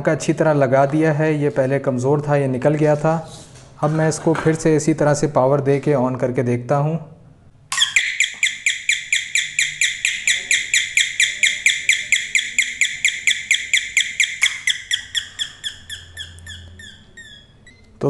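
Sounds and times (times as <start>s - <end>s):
electronic doorbell chirping: 7.7s - 17.9s.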